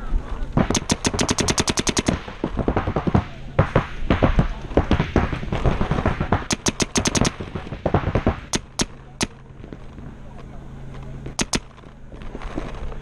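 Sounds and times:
paintball markers firing: 0.6 - 9.4, 11.4 - 11.7.

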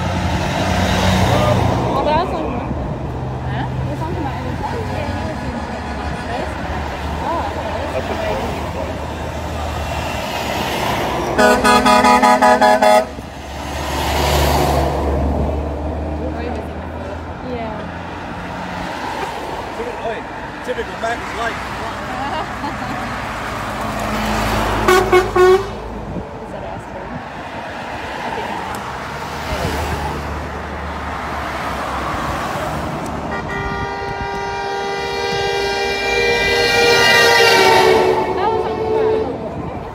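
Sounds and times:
truck passing: 0.0 - 39.9
truck air horn toots: 11.4 - 13.2, 24.8 - 25.8, 33.3 - 39.5.

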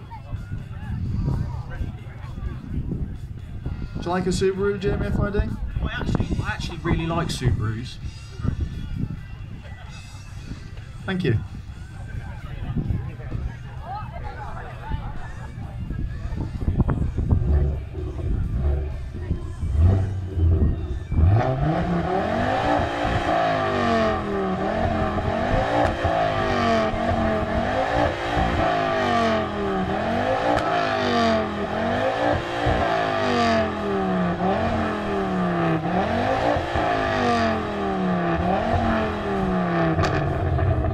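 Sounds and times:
exhaust crackles: 14.6 - 40.9
car engine revving: 15.2 - 40.9.

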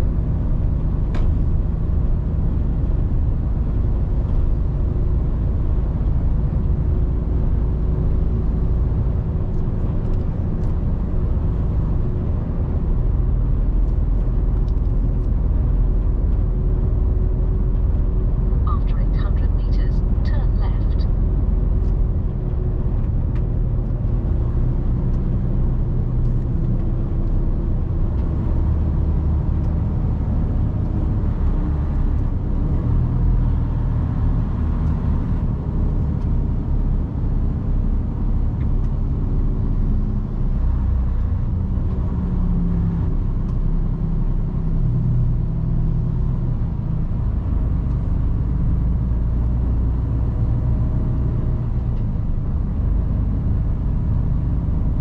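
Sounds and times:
truck diesel engine running: 11.2 - 24.6.

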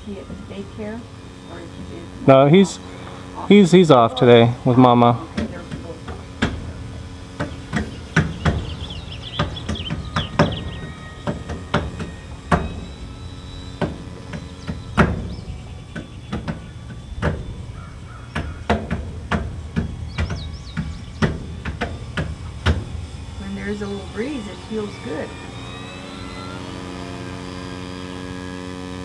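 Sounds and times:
low steady hum: 0.0 - 29.0
sharp knocks: 7.4 - 12.9, 13.8 - 17.5, 18.3 - 22.9
faint high chirps: 7.4 - 18.6, 23.0 - 27.8.

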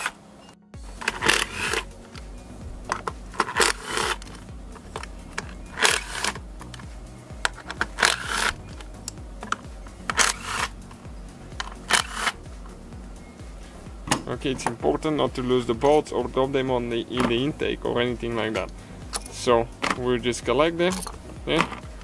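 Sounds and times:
cordless driver spinning bolts: 1.0 - 2.2, 2.9 - 6.8, 7.4 - 10.8, 11.6 - 12.4.

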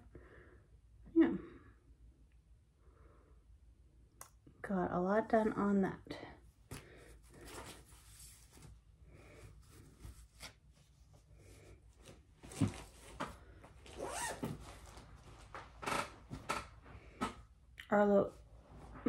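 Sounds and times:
fabric rustling: 7.0 - 16.5.

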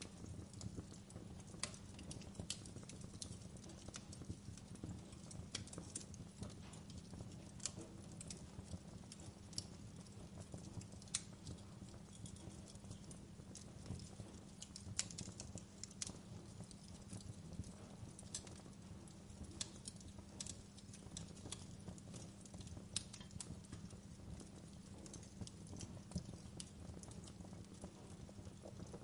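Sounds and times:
embers crackling and popping: 0.0 - 29.0
low fire rumble: 0.0 - 29.0.

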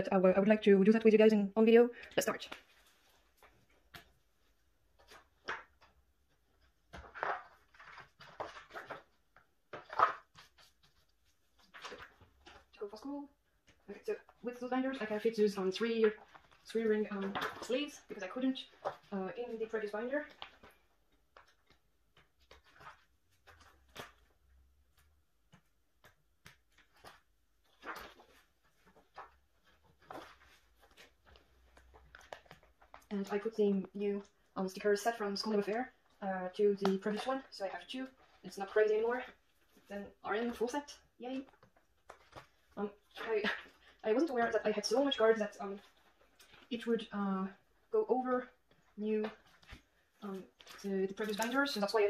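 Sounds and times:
paper rustling: 2.4 - 13.0, 13.6 - 47.1, 48.4 - 52.0
plastic sleeve crinkling: 48.6 - 52.0.

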